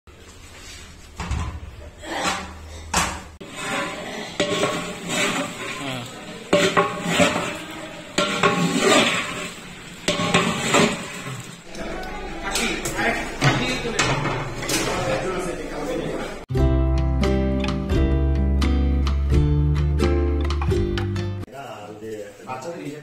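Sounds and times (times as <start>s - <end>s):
pot lid clanking: 2.9s - 5.7s, 8.2s - 9.5s
metal ladle scraping and knocking pot: 3.4s - 5.8s, 6.4s - 11.4s.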